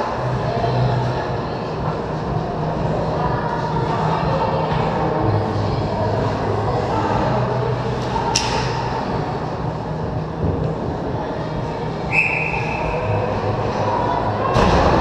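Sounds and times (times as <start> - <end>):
referee's whistle blast: 12.1 - 12.9.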